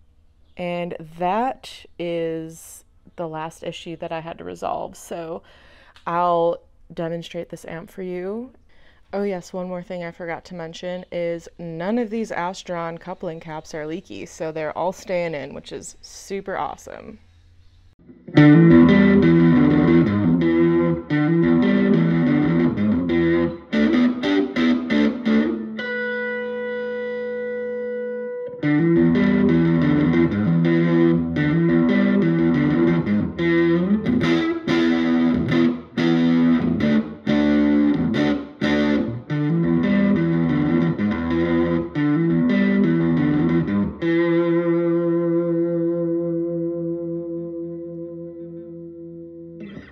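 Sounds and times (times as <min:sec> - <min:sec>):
overdriven electric guitar chords: 0:18.0 - 0:49.9.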